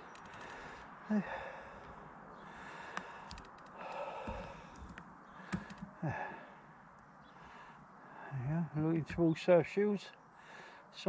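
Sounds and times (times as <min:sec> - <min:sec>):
man breathing out: 0:00.3 - 0:06.6
voiced sigh: 0:00.4 - 0:06.6
light clicks: 0:02.9 - 0:05.9.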